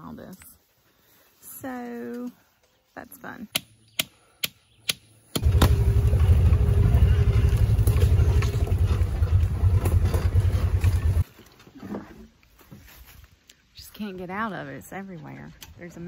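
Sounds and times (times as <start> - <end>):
vehicle engine rumbling: 5.4 - 11.2.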